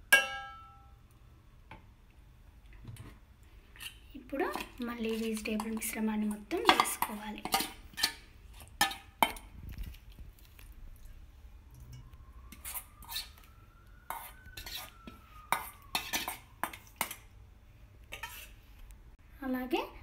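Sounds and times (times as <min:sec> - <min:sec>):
spoon scraping a glass bowl: 0:12.5 - 0:13.5, 0:14.1 - 0:17.2, 0:18.1 - 0:18.6.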